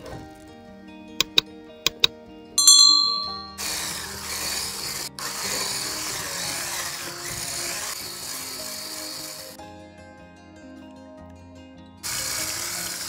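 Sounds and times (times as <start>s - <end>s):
soft background music: 0.0s - 13.0s
electric mixer whisking batter: 3.6s - 9.6s, 12.0s - 13.0s.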